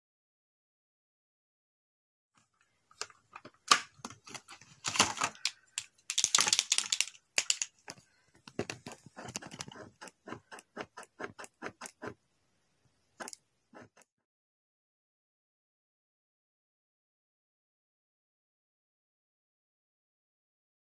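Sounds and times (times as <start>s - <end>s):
plastic pack clicking and rustling: 3.0s - 9.7s.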